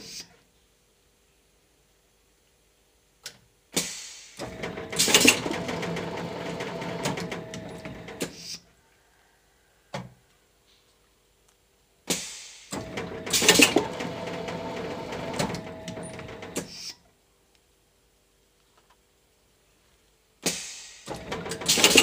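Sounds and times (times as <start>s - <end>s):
machine hissing and rattling: 3.8s - 8.5s, 12.1s - 16.8s, 20.4s - 22.0s.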